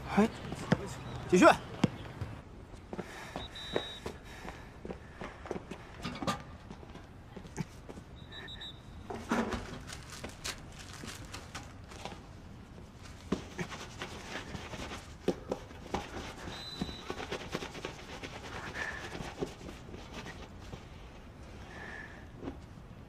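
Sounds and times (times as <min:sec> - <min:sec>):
sneaker rustling: 0:09.5 - 0:21.0.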